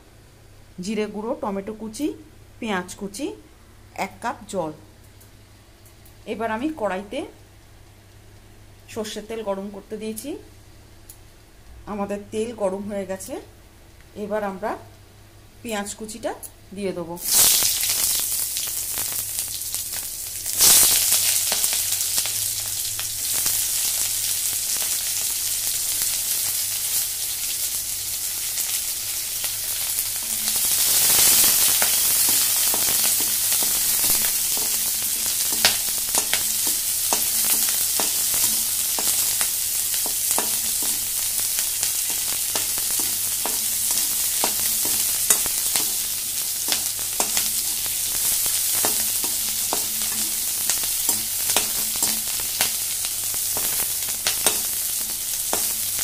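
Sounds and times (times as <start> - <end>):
onions sizzling in oil: 17.1 - 56.0.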